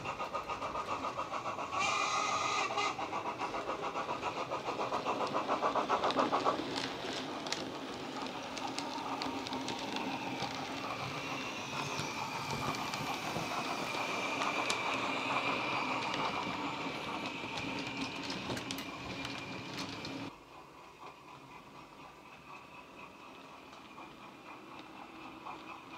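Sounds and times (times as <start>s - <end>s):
wheels clicking over model track: 0.0s - 20.4s
model steam locomotive chuffing: 0.0s - 25.9s.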